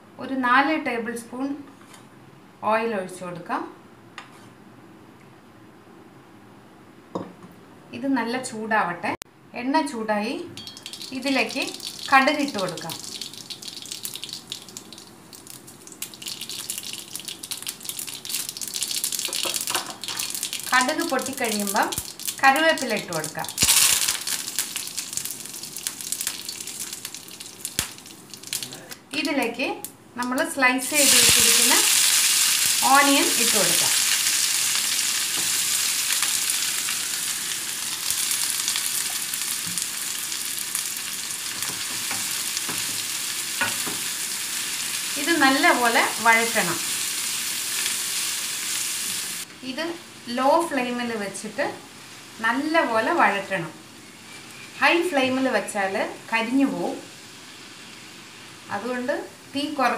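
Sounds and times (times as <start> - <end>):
oil sizzling: 10.6 - 29.5, 30.2 - 59.9
seeds popping in hot oil: 10.6 - 49.5.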